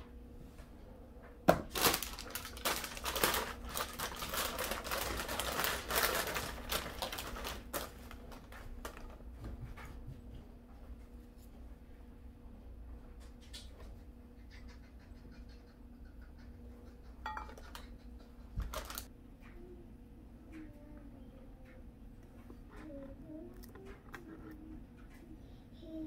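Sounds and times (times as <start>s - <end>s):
plastic bag crinkling: 1.7s - 9.2s, 18.6s - 19.1s.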